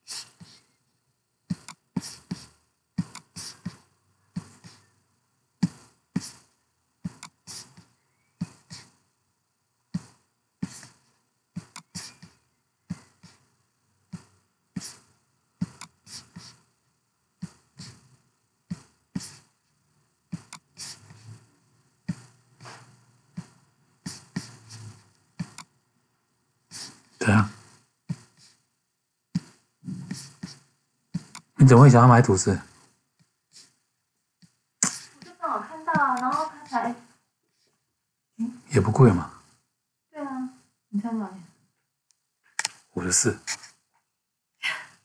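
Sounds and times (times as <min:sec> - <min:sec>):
sharp knocks with hiss: 0:22.0 - 0:25.6, 0:34.8 - 0:36.8.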